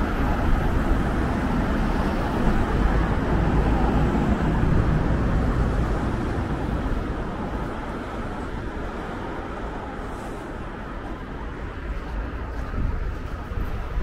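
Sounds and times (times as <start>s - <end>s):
vehicle rumbling past: 0.0s - 7.8s.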